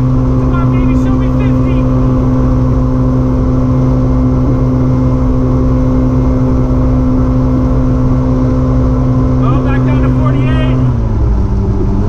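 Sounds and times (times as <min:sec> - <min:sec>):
boat engine loud drone: 0:00.0 - 0:12.0
rush of wind and water: 0:00.0 - 0:12.0.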